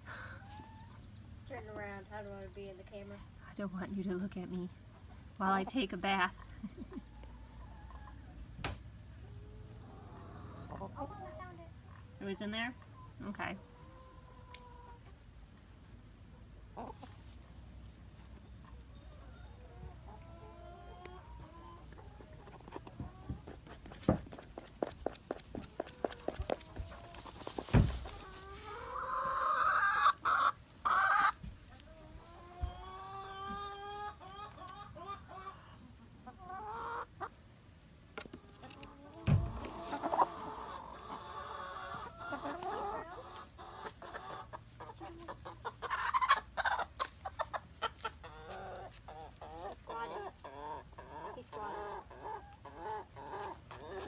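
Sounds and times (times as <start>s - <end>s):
hens clucking and calling: 0.0s - 1.3s, 4.8s - 54.0s
dull thumps: 27.6s - 28.1s.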